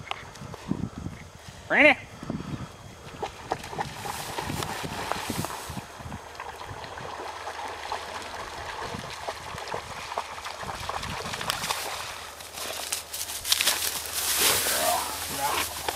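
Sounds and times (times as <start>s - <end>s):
dog splashing through shallow water: 3.4s - 15.9s.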